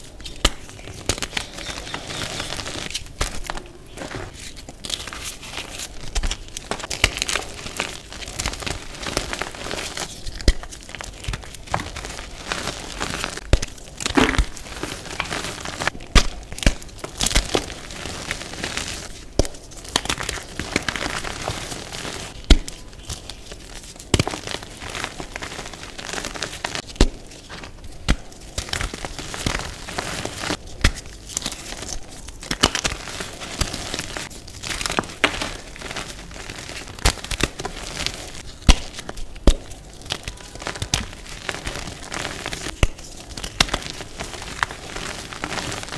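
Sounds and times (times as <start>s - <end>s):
chalk crunching and crackling: 0.0s - 45.9s
chalk pieces snapping: 0.2s - 17.7s, 36.6s - 45.9s.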